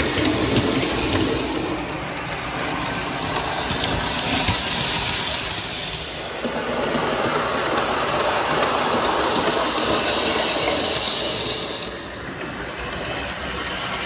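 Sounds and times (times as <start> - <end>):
model train wheels and motor rumble: 0.0 - 14.0.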